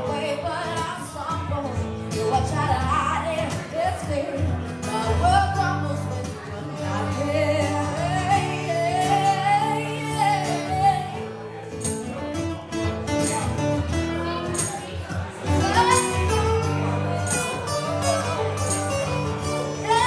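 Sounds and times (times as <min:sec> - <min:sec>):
woman singing: 0:00.0 - 0:11.5, 0:19.7 - 0:20.0
guitar accompaniment: 0:00.0 - 0:20.0.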